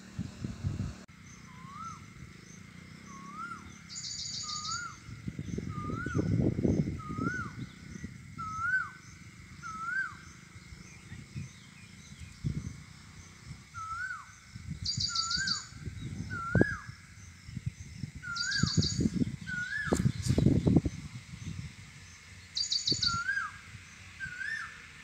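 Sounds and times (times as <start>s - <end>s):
wind rumbling on microphone: 0.0s - 25.0s
bird whistled call: 1.3s - 2.1s, 3.1s - 10.4s, 13.7s - 17.0s, 18.2s - 20.4s, 22.6s - 23.6s, 24.2s - 24.8s.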